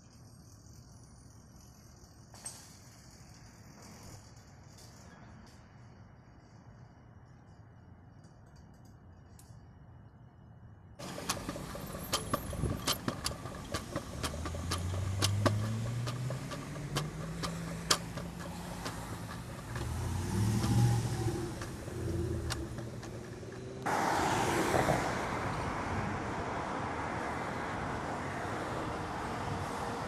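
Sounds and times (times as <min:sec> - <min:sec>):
road traffic noise: 0:00.0 - 0:30.0
clicks and rattles: 0:11.0 - 0:23.9
pickup truck engine driving past: 0:11.0 - 0:27.1
semi-truck approaching: 0:11.0 - 0:30.0.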